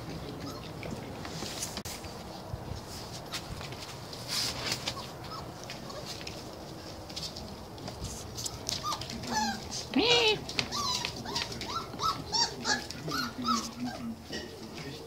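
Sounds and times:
puppies scuffling on hard floor: 0.0 - 15.0
puppy squeaks: 0.4 - 0.7, 8.5 - 14.1.

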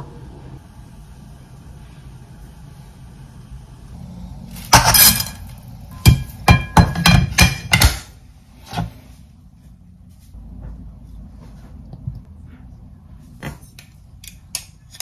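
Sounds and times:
cookware clanking: 4.6 - 8.1.

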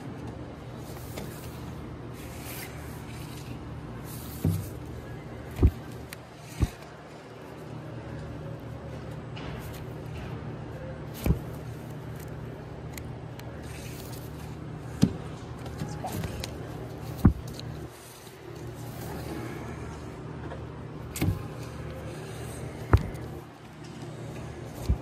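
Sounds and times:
low background hum: 0.0 - 25.0
record sleeves knocking: 5.5 - 6.9, 15.0 - 17.8.

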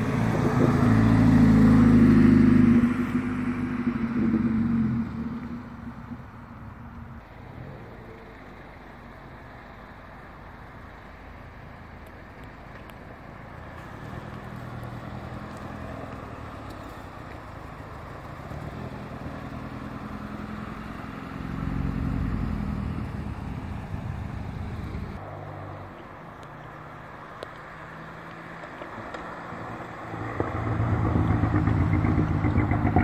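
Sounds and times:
car with low exhaust note: 0.0 - 9.5, 10.1 - 25.2, 26.3 - 33.0
cars driving past: 0.0 - 33.0.

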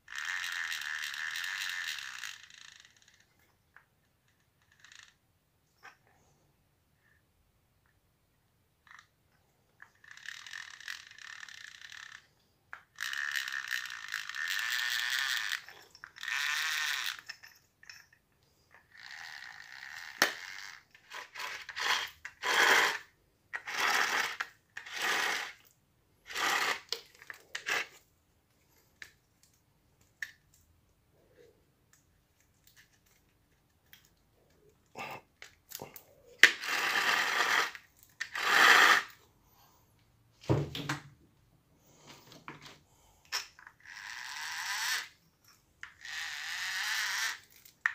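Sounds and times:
drill housing scraping and rubbing: 19.0 - 25.7, 26.3 - 28.0, 35.8 - 39.2.

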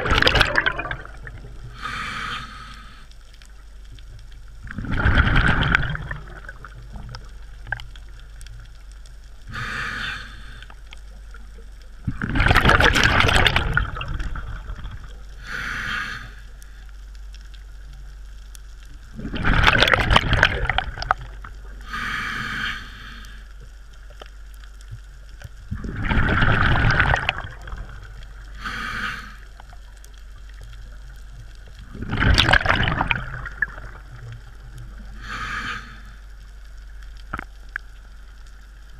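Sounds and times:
exhaled bubbles gushing: 0.0 - 1.8, 4.6 - 8.1, 12.0 - 15.3, 19.1 - 21.8, 25.7 - 28.5, 31.8 - 35.0
regulator air hiss: 1.7 - 3.1, 9.5 - 10.7, 15.4 - 16.8, 21.9 - 23.5, 35.1 - 36.3.

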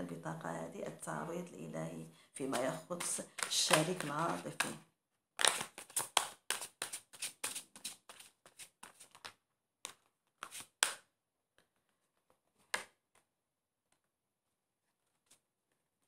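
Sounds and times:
deck of cards shuffled by hand: 2.4 - 4.8, 5.4 - 11.1.

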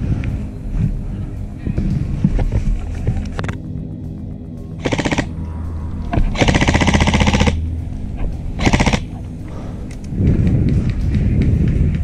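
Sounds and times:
airsoft gun full-auto bursts: 4.8 - 5.3, 6.4 - 7.6, 8.6 - 9.1.

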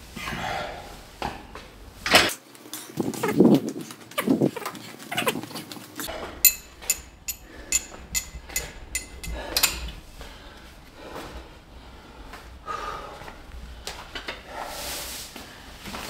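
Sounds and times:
person breathing hard: 0.2 - 1.1, 7.2 - 15.8
weight machine pin clinking: 6.4 - 10.0.

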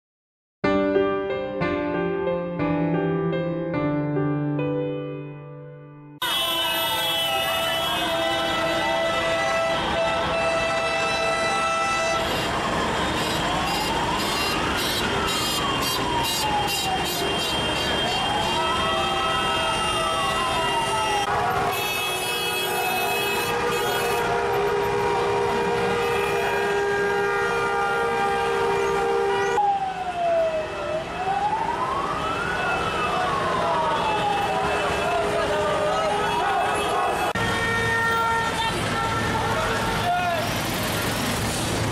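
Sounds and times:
vehicle horn blast: 6.2 - 12.5, 21.7 - 29.6
vehicle siren wailing: 6.2 - 40.8
slow car traffic: 6.2 - 41.9.

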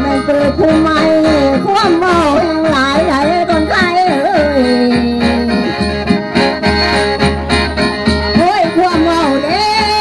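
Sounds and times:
person singing wavering line: 0.0 - 6.1.

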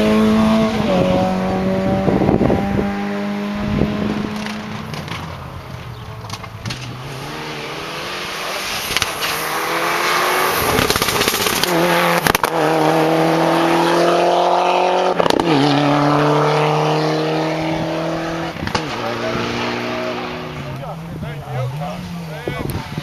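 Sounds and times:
rally car engine at full throttle: 0.0 - 23.0
sharp cracks at gear changes: 4.2 - 7.4, 8.6 - 13.0, 15.2 - 15.6, 18.5 - 19.1.

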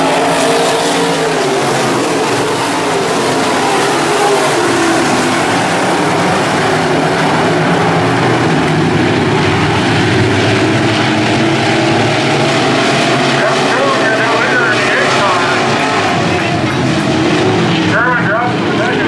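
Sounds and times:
race car engines roaring: 0.0 - 19.0.

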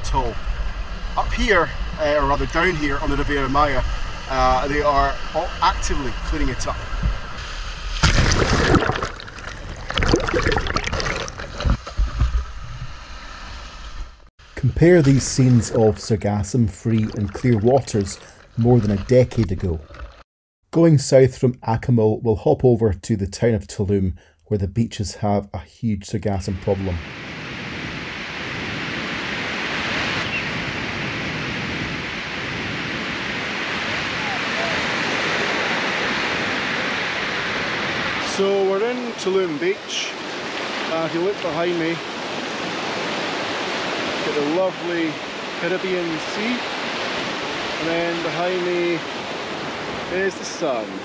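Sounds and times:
seawater sloshing and splashing: 7.8 - 12.4, 16.7 - 20.2
small waves breaking on sand: 27.1 - 51.0.

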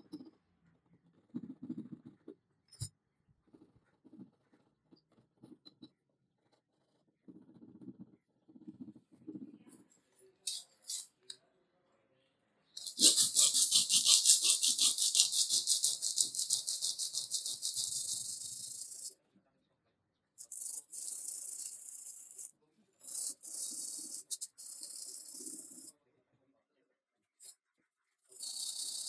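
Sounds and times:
sandpaper rubbing on wood: 12.8 - 19.1.

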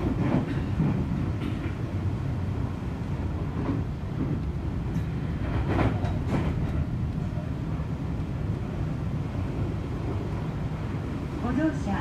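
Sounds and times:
wheels clacking over rail joints: 0.0 - 2.0, 3.4 - 10.3
train wheels rumbling on rail: 0.0 - 12.0.

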